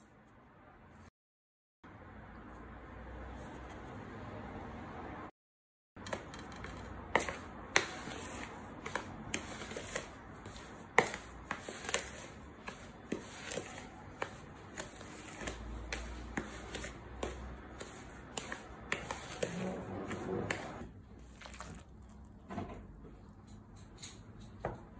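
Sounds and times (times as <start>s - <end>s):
spoon scraping powder in bowl: 6.0s - 20.8s.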